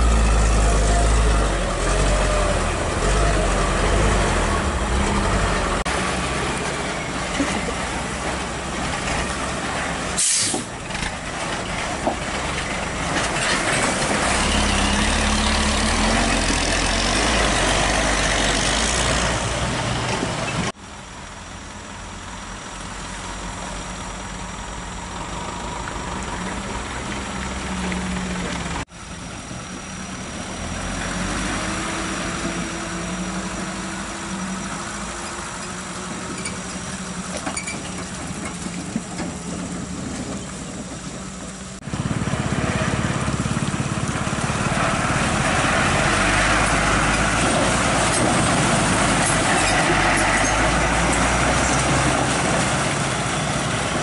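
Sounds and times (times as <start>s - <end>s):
truck diesel engines in mud: 0.0s - 54.0s
pickup engine rising in pitch: 41.8s - 54.0s.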